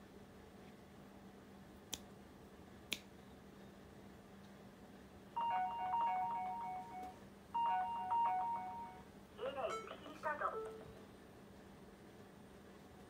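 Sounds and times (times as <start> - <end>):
electronic beeping tune: 5.4 - 9.0.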